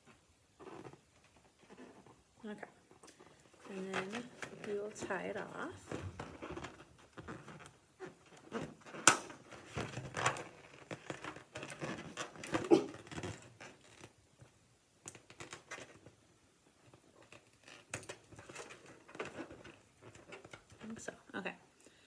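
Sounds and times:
balloon rubber squeaks: 6.4 - 14.1.

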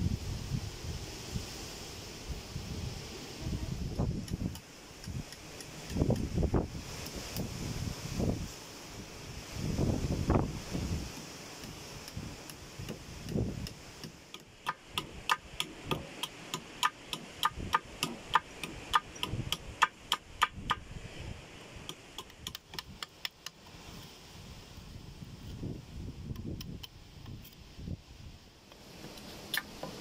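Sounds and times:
sharp repeated knocks: 14.4 - 20.8.

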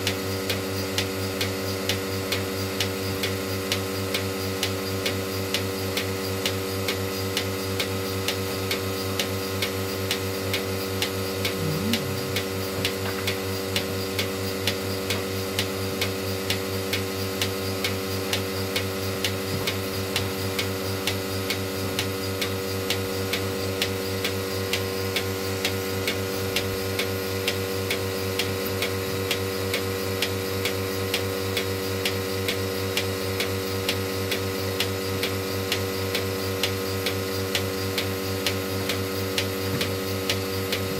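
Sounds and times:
vacuum pump hum: 11.5 - 13.2.

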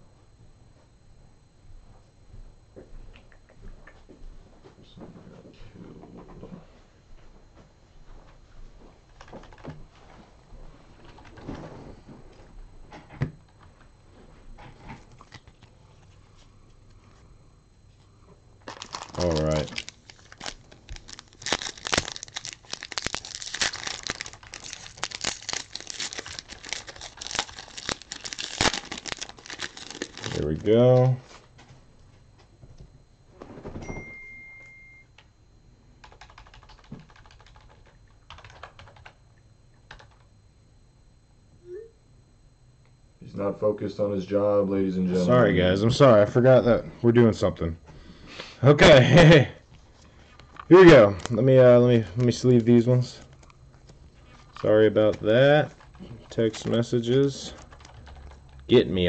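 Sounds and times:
keyboard typing: 9.2 - 9.7, 36.0 - 39.2, 39.9 - 40.3, 57.6 - 58.7.

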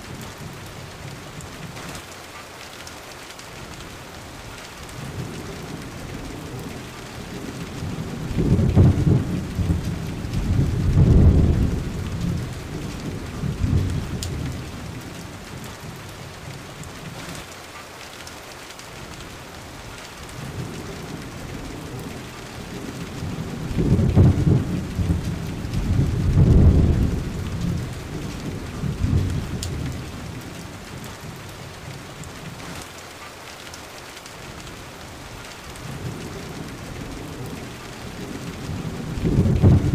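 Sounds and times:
steady rain: 0.0 - 39.9
deep thunder rolling: 6.0 - 16.0, 20.4 - 31.0, 35.8 - 39.9.

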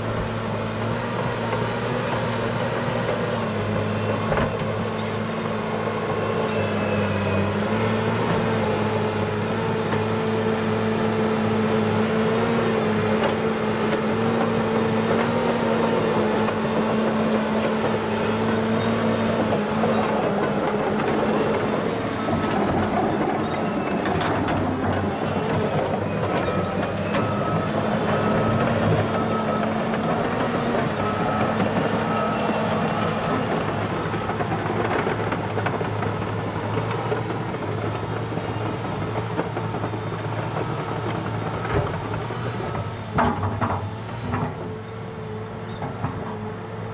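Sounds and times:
loader diesel engine under load: 0.0 - 46.9.

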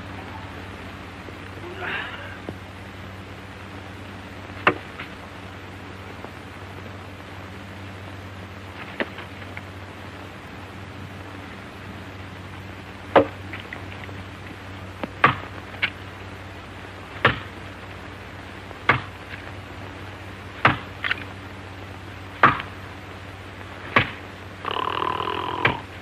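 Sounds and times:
low hum: 0.0 - 26.0
axe chopping tree trunk: 13.1 - 13.4, 15.2 - 15.4, 17.2 - 17.5, 18.8 - 19.1, 20.6 - 21.2, 22.4 - 22.8, 23.8 - 24.2.

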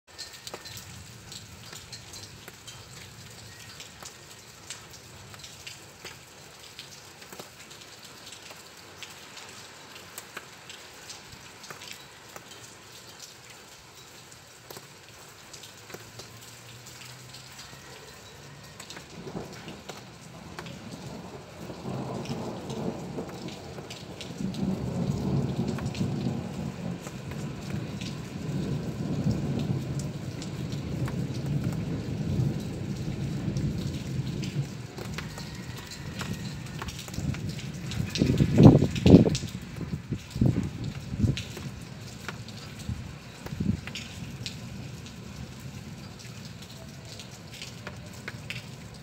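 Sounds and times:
rain falling: 0.1 - 49.0
low roll of thunder: 19.0 - 41.8.

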